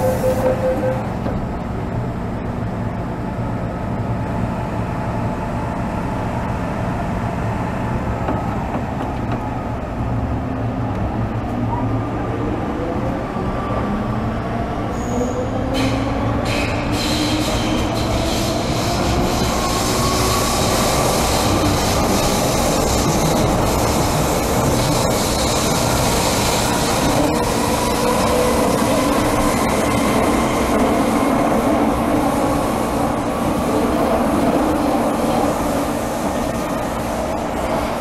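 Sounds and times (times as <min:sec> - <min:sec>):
train low rumble: 0:00.0 - 0:38.0
wheels hissing on rails: 0:15.8 - 0:38.0.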